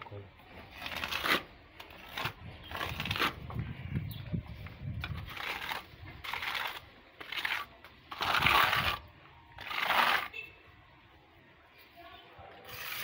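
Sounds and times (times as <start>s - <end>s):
trowel scraping on wall: 0.7s - 3.4s, 5.0s - 9.0s.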